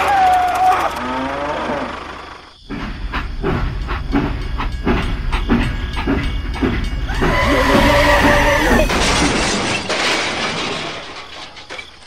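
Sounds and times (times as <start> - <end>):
steam locomotive chugging: 2.7 - 8.9.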